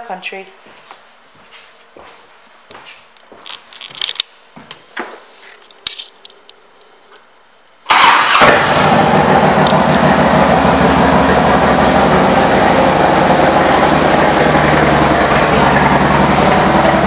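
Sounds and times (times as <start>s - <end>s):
motorcycle engine running loud: 8.4s - 17.0s.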